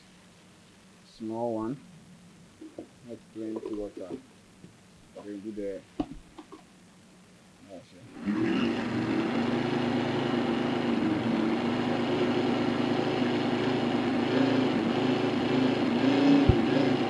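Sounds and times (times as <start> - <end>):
blender motor running: 8.1 - 17.0.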